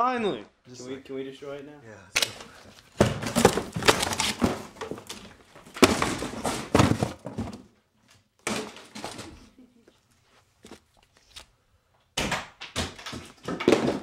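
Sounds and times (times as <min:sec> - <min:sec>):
wood crashing and banging: 0:02.2 - 0:07.8, 0:08.4 - 0:09.5, 0:12.2 - 0:14.0.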